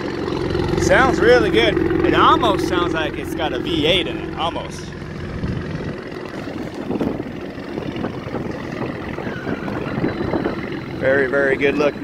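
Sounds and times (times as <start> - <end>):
deep engine exhaust note: 0.0 - 12.0.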